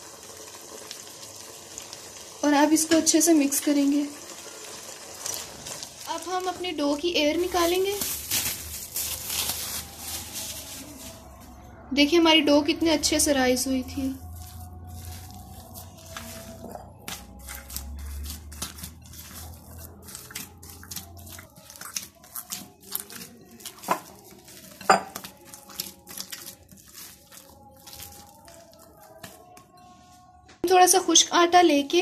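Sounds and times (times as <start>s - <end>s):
hands kneading dough: 13.0s - 30.3s.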